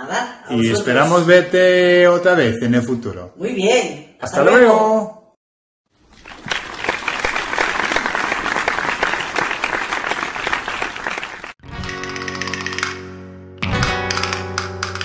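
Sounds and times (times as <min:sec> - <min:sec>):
crowd applause: 0:06.0 - 0:11.6
music with held notes: 0:11.6 - 0:15.0.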